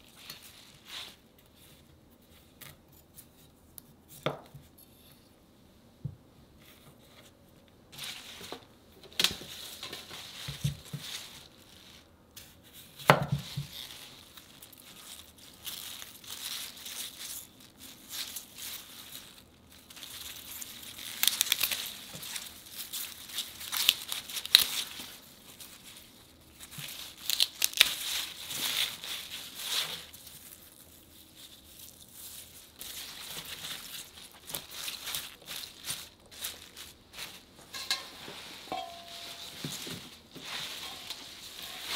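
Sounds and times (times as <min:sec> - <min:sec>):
greens rustling and tearing: 0:13.4 - 0:41.9.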